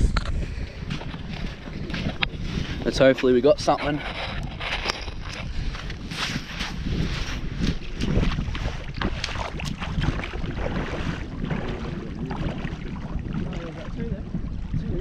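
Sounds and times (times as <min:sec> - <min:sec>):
wind buffeting microphone: 0:00.0 - 0:15.0
feet splashing in shallow water: 0:05.6 - 0:15.0.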